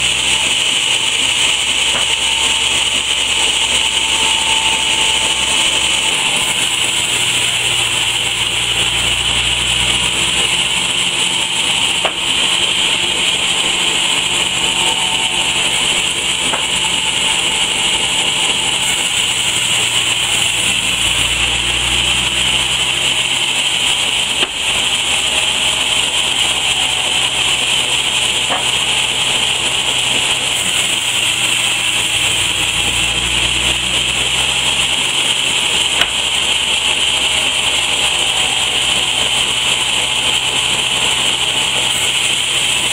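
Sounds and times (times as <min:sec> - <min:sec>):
low hum: 0:00.0 - 0:42.9
sawmill saw cutting wood: 0:00.0 - 0:42.9
wood knocking: 0:12.0 - 0:12.5, 0:28.4 - 0:29.0.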